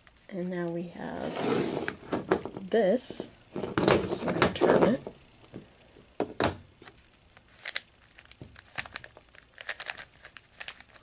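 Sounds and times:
puzzle cube clicking and rattling: 7.5s - 11.0s.

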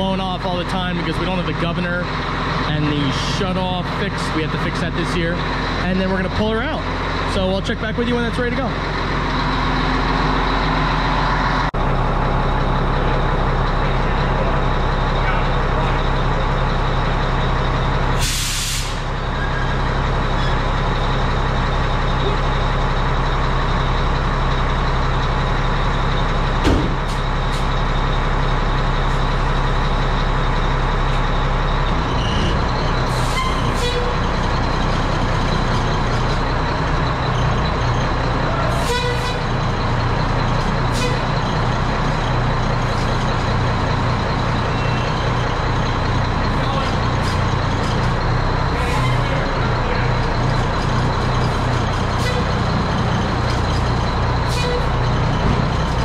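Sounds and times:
diesel engine idling: 0.0s - 56.0s
short air hisses: 18.2s - 19.0s.

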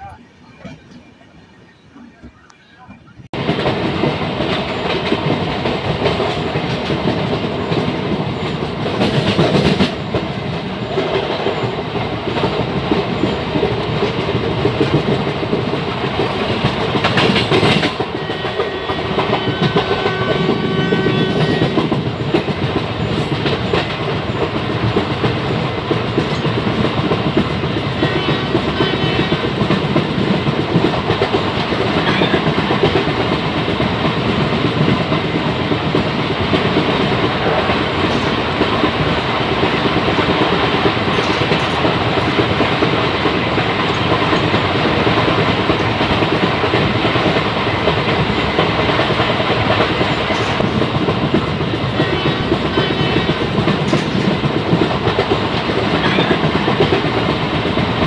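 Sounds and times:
train wheel and track rush: 0.0s - 58.0s
clatter over rail joints: 21.2s - 58.0s.

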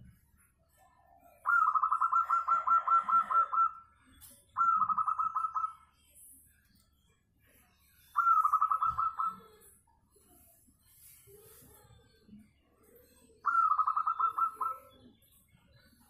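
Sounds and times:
dove cooing: 1.4s - 3.8s, 4.6s - 5.7s, 8.2s - 9.4s, 13.5s - 14.9s.

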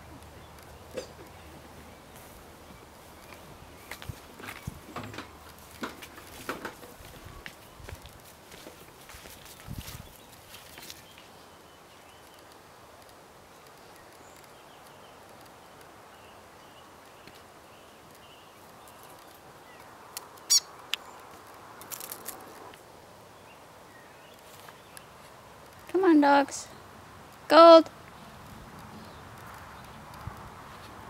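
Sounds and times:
clicks and rustles: 4.0s - 11.3s, 20.2s - 22.8s
bird cheeping: 20.5s - 20.7s
squeaky bird call: 20.5s - 20.7s.

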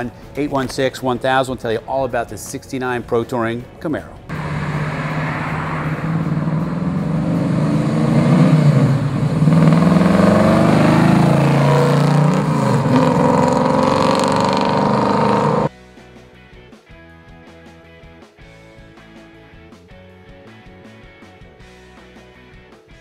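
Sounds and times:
car engine accelerating: 4.3s - 15.7s.

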